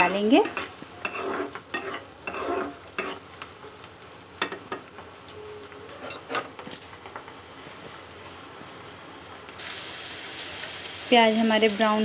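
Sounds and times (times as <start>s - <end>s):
spoon scraping a pan: 0.0s - 3.3s, 5.9s - 6.6s
onions sizzling in oil: 0.0s - 12.0s.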